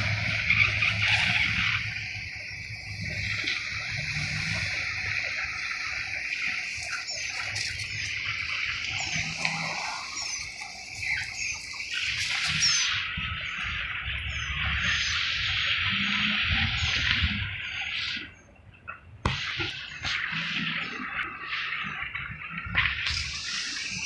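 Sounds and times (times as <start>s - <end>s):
birds chirping: 0.0s - 24.0s
steady hiss: 19.3s - 24.0s.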